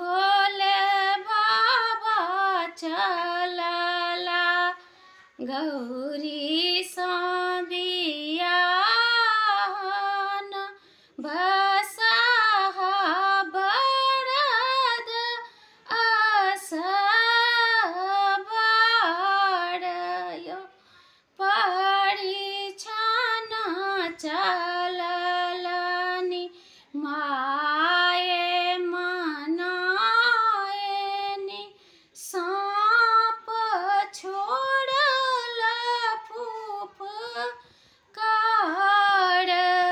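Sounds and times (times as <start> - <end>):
woman singing unaccompanied: 0.0 - 39.9.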